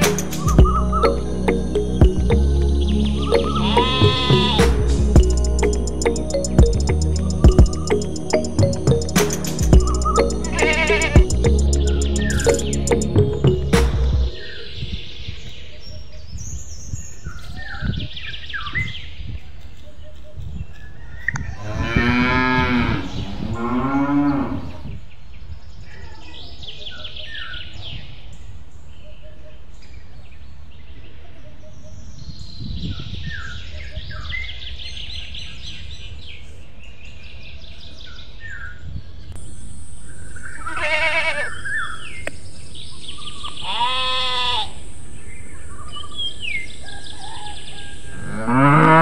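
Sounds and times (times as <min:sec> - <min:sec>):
small birds chirping: 0:00.0 - 0:21.6, 0:25.1 - 0:48.2
cow mooing: 0:03.4 - 0:04.6, 0:10.6 - 0:11.2, 0:21.6 - 0:24.8, 0:48.2 - 0:49.0.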